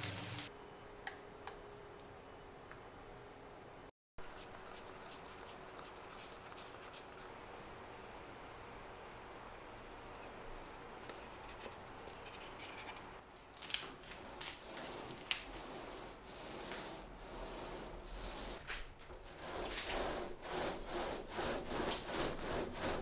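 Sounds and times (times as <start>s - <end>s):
paint roller rubbing strokes: 4.2s - 7.3s, 14.0s - 23.0s.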